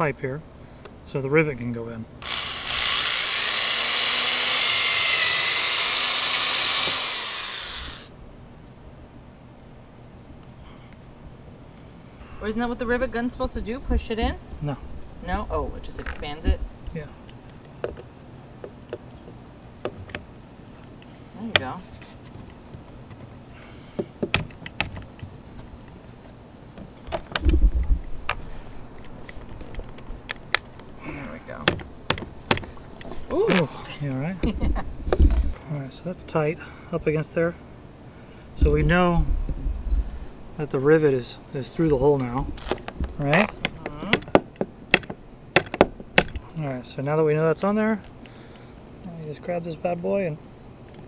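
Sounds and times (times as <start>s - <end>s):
power drill boring metal pipe: 2.2s - 8.1s
dull low thump: 38.6s - 40.1s.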